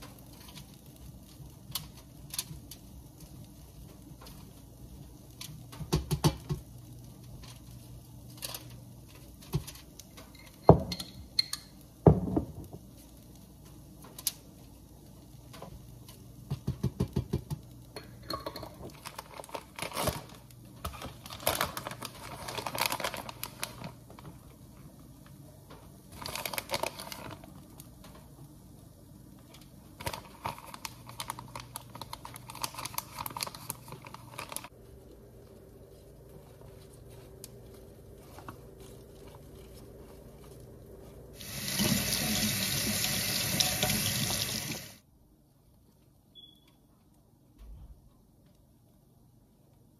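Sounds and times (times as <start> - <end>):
shredded cheese pattering: 0.0 - 10.2, 18.9 - 41.4
plastic bag crinkling: 18.8 - 24.7, 26.1 - 28.1, 29.4 - 42.4.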